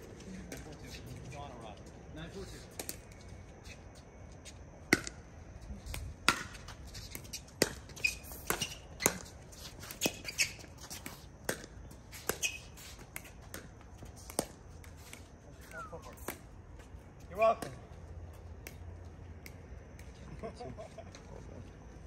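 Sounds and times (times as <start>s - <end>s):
ball bouncing on hard court: 5.9s - 9.3s, 10.0s - 15.2s.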